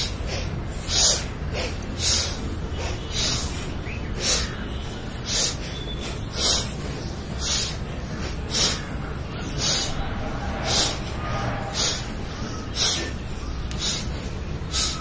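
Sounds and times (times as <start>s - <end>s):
person breathing sharply through nose: 0.0s - 15.0s
steady low rumble: 6.1s - 15.0s.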